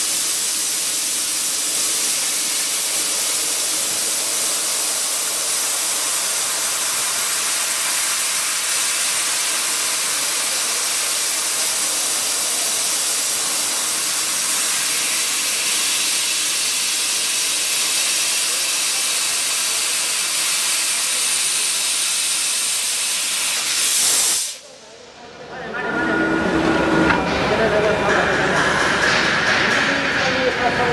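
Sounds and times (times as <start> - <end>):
loud gas jet hiss: 0.0 - 24.7.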